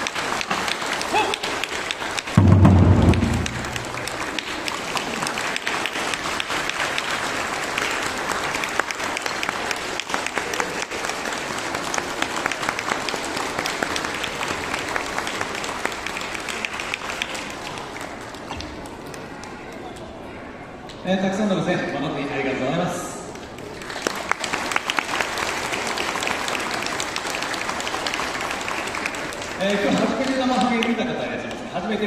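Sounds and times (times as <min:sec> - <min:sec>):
audience applauding: 0:00.0 - 0:19.8, 0:23.4 - 0:31.6
deep loud boom: 0:02.4 - 0:04.3.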